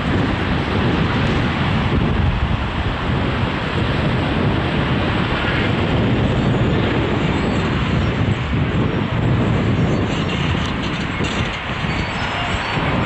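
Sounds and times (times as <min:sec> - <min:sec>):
excavator diesel engine rumbling: 0:08.3 - 0:13.0.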